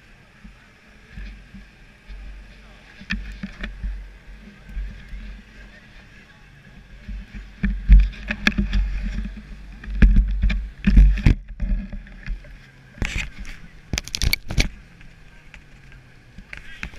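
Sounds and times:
sharp clicks and knocks: 7.0s - 16.9s.

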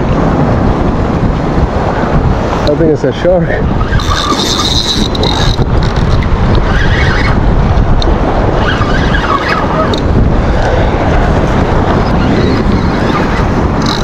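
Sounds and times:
waves washing against rocks: 0.0s - 14.0s
wind buffeting microphone: 0.0s - 14.0s.

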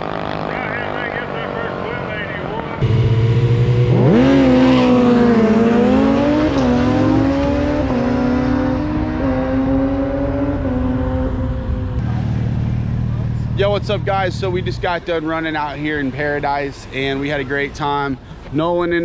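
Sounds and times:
engine revving: 0.0s - 15.2s.

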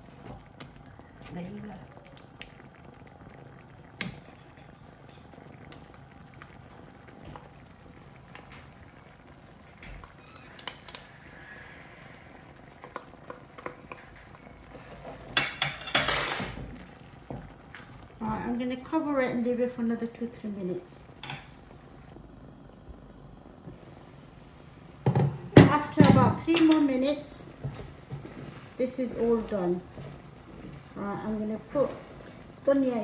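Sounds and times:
dhaal bubbling softly: 0.0s - 15.4s, 16.6s - 33.0s
wooden spoon scraping sauce: 27.6s - 31.0s.

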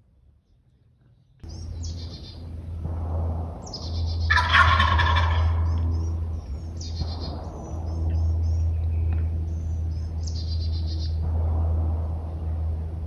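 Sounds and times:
songbirds chirping: 0.0s - 13.0s
steady low rumble: 0.0s - 13.0s
turkey gobbling: 3.8s - 5.8s.

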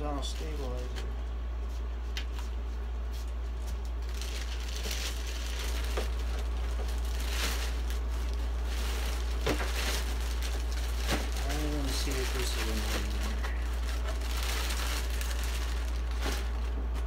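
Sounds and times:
steady low hum: 0.0s - 17.0s
plastic bag crinkling: 3.6s - 17.0s.

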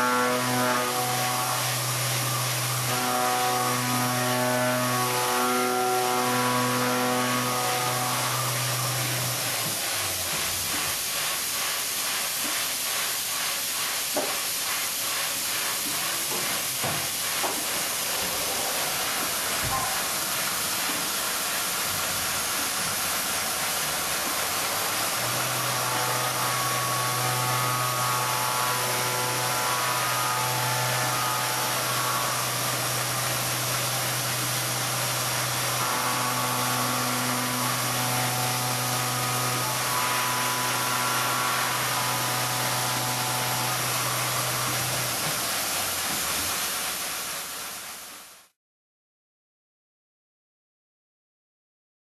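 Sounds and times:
hiss of air-oil mist: 8.9s - 25.3s, 44.7s - 48.4s.

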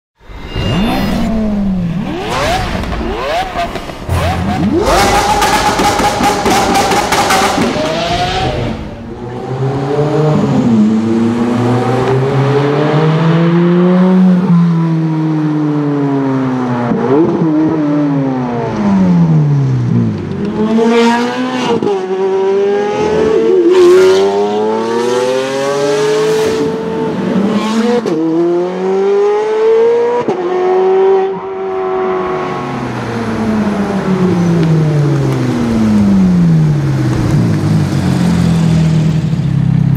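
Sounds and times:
sports car engine revving: 0.6s - 14.1s.

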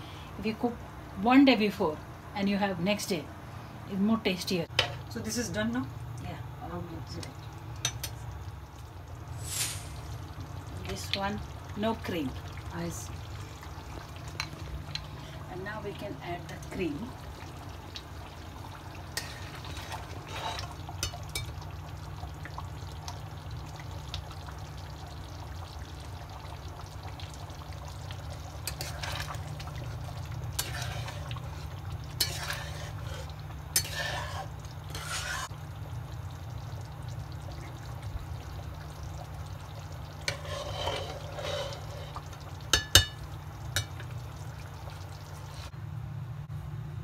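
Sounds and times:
wet stirring and scraping: 18.5s - 21.6s, 28.3s - 35.6s, 40.1s - 44.2s, 45.3s - 45.7s
spatula clinking on metal pan: 42.7s - 43.2s.

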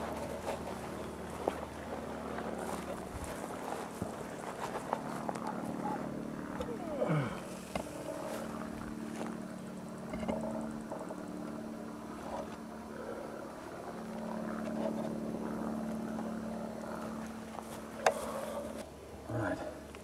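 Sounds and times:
steady mechanical drone: 0.0s - 20.0s.

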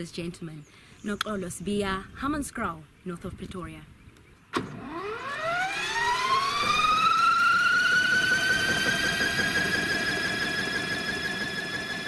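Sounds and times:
mechanical whine spinning up: 4.6s - 12.0s.

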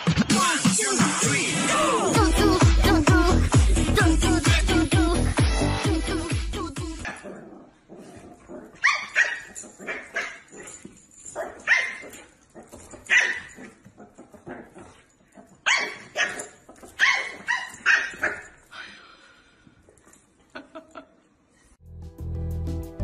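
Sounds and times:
dance music: 0.0s - 7.1s
dog yapping: 8.5s - 10.7s, 11.4s - 15.0s, 15.6s - 18.6s.

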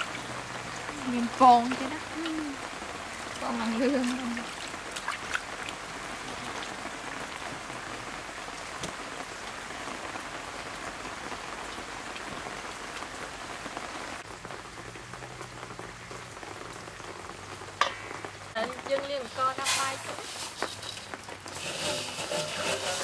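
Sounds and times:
steady hiss of water: 0.0s - 23.0s.

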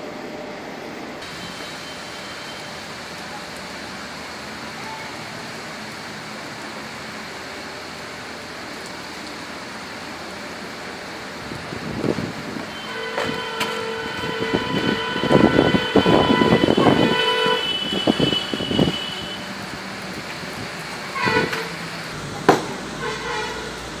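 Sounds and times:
vehicle horn honking: 12.7s - 19.5s, 21.0s - 21.8s, 23.0s - 23.9s
sharp knock: 22.4s - 22.8s.

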